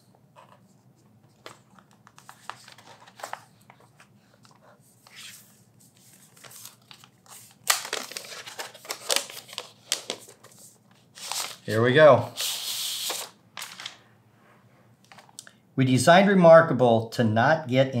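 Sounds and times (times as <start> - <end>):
paper packaging rustling: 0.4 - 14.0.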